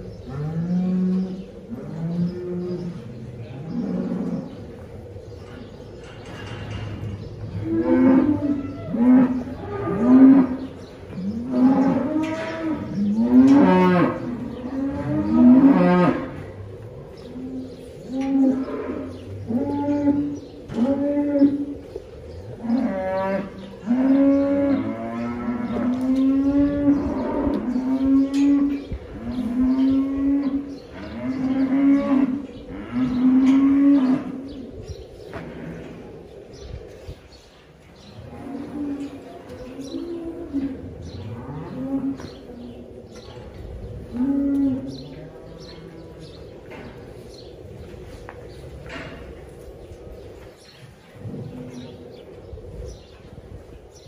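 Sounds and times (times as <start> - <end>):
cattle mooing: 7.5 - 16.4.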